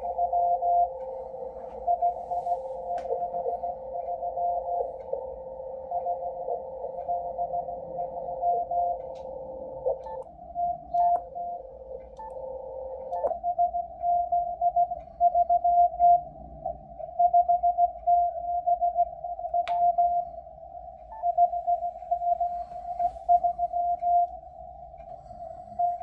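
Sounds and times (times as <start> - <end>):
low steady tone: 0.0 - 26.0
morse code tone: 0.0 - 26.0
radio band hiss: 0.8 - 8.3.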